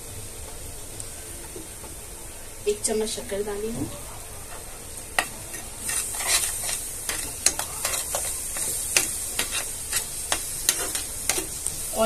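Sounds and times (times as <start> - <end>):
faint sizzle: 0.0 - 12.0
spoon scraping and tapping pan: 5.2 - 11.6.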